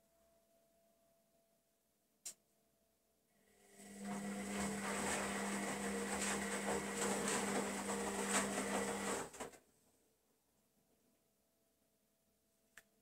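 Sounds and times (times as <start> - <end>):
washing machine hum: 3.6 - 9.6.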